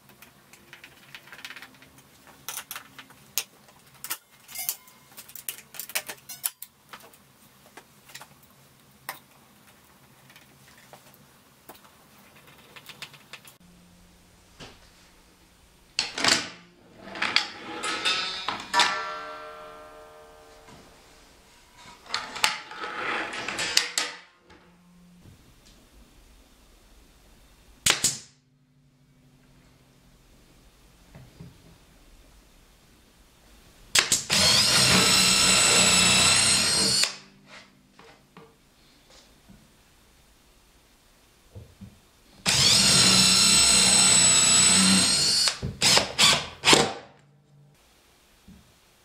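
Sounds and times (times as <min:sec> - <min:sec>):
nail gun pops: 0:27.8 - 0:28.3, 0:34.0 - 0:34.3
cordless drill boring into plywood: 0:34.3 - 0:37.2, 0:42.4 - 0:46.8.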